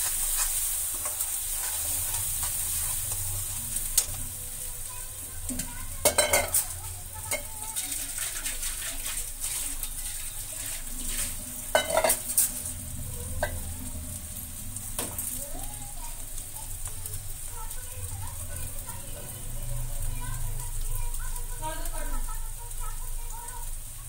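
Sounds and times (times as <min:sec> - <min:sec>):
metal spatula scraping a pan: 0:00.0 - 0:04.2, 0:05.5 - 0:12.8
vegetables sizzling in a pan: 0:00.0 - 0:24.0.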